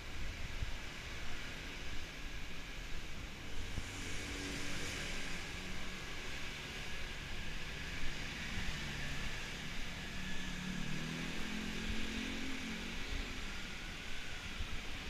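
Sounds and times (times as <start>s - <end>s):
hiss of passing vehicles: 0.0s - 15.0s
vehicle engine passing by: 3.6s - 14.6s.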